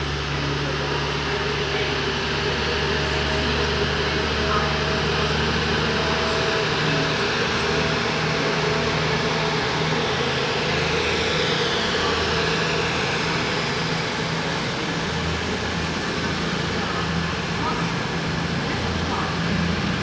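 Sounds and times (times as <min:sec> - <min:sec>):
diesel train engines droning: 0:00.0 - 0:20.0.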